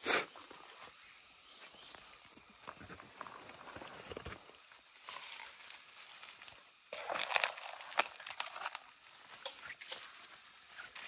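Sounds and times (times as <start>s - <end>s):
footsteps crunching dry leaves: 4.9s - 11.0s
twigs snapping: 5.4s - 10.2s.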